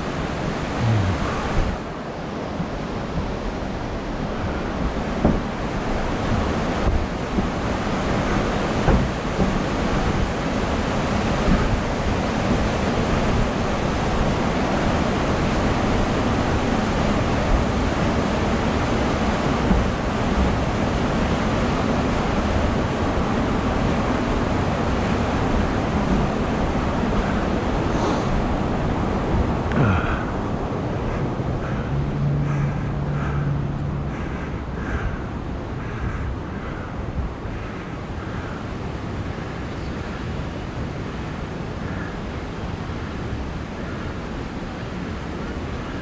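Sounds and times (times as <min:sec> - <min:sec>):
steady rushing noise: 0:00.0 - 0:46.0.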